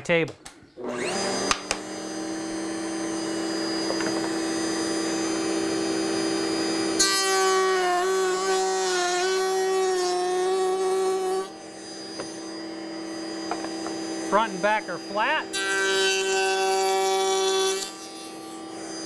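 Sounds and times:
router cutting wood: 0.8s - 19.0s
router motor running: 0.8s - 19.0s.

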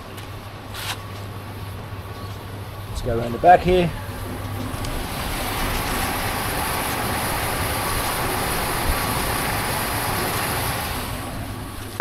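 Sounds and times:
tumble dryer running: 2.6s - 12.0s.

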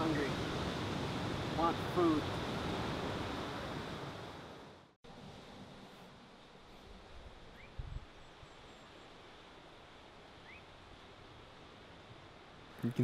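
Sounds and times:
bird chirps: 10.4s - 10.7s.

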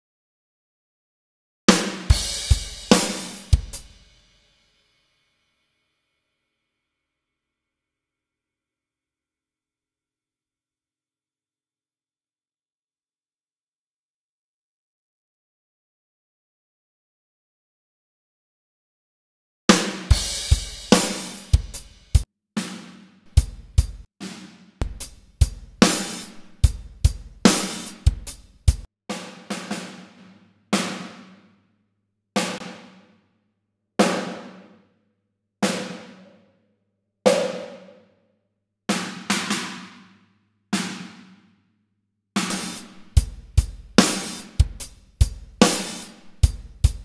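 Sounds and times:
drum kit groove: 1.7s - 4.4s, 19.7s - 31.4s, 32.4s - 33.0s, 34.0s - 34.5s, 35.6s - 36.2s, 37.3s - 37.8s, 42.4s - 47.0s.

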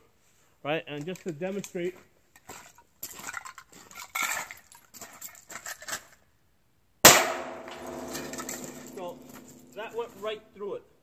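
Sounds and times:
rifle shot: 7.1s - 9.0s.

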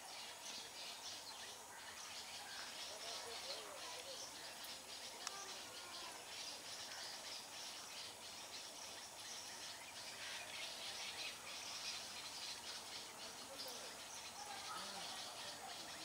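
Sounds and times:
birds chirping: 0.0s - 16.0s
steady hiss: 0.0s - 16.0s.

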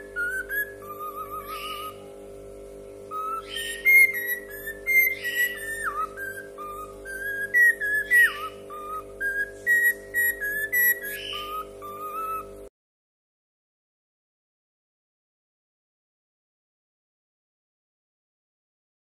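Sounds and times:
cockatiel whistling a tune: 0.0s - 2.0s, 3.1s - 12.5s.

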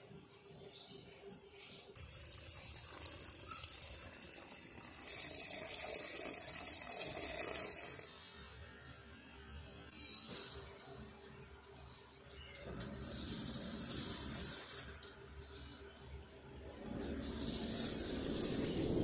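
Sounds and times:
water gushing into washing machine: 1.9s - 8.1s, 12.9s - 15.1s, 16.8s - 19.0s.

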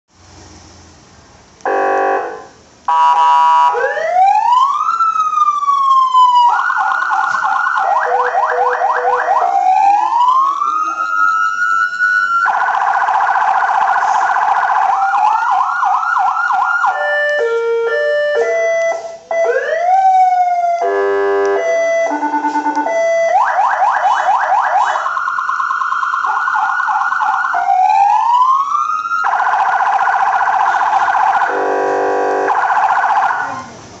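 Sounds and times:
police siren yelping and wailing: 1.6s - 33.9s
buzzing horn tone: 30.7s - 32.5s.

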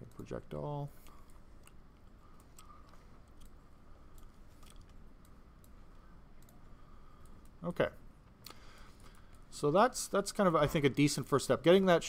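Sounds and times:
faint background hum: 0.0s - 12.0s.

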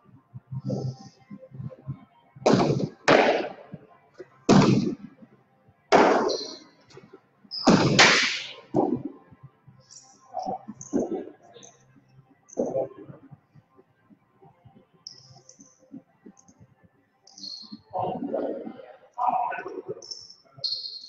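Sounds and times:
ball cracking against walls: 7.7s - 9.0s.

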